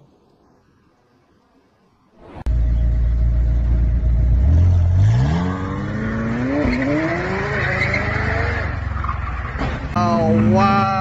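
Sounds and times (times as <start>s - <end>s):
car engine accelerating hard: 2.5s - 9.0s.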